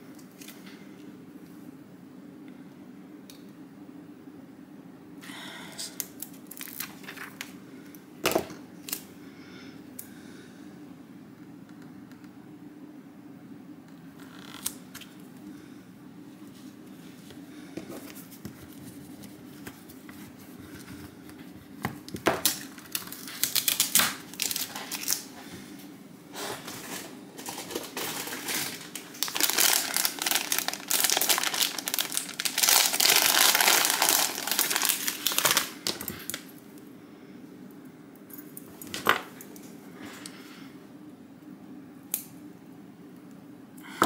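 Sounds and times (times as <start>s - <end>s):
plastic packaging crinkling: 6.1s - 7.5s, 22.2s - 25.3s, 26.7s - 36.5s.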